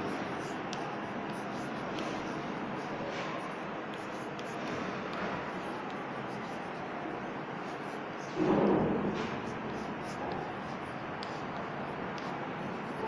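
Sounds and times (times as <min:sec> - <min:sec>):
chalk scratching on blackboard: 0:00.0 - 0:13.0
chalk tapping: 0:00.0 - 0:13.0.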